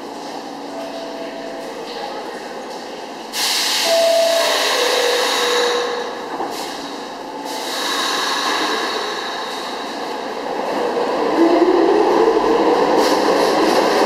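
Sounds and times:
subway train running noise: 0.0s - 14.0s.

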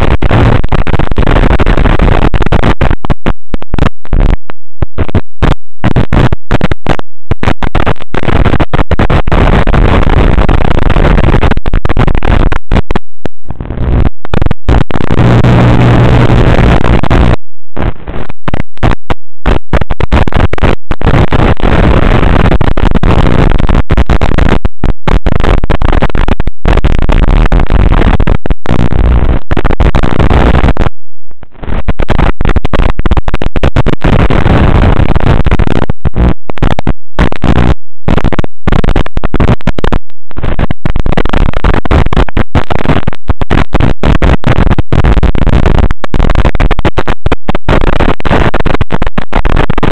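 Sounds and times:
harsh radio static and buzz: 0.0s - 49.9s.

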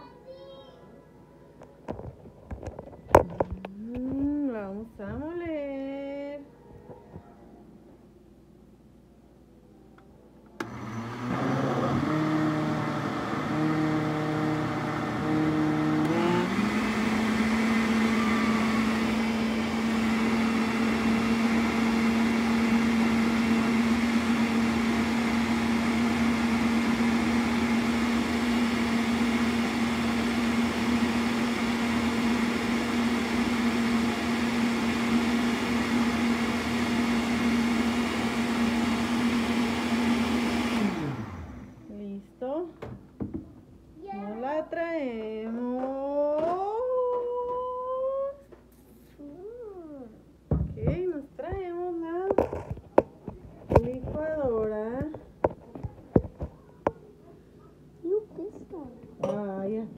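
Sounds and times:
blender motor running: 10.6s - 41.8s.

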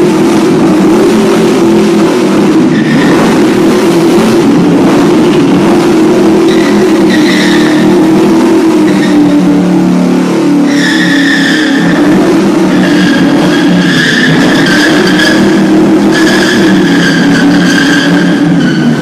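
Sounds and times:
car engine at high revs: 0.0s - 19.0s
tyres squealing on wood: 10.7s - 12.0s, 12.7s - 19.0s.

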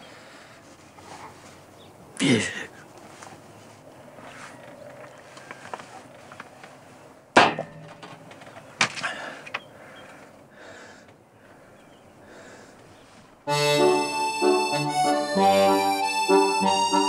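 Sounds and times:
accordion music: 13.4s - 17.0s.

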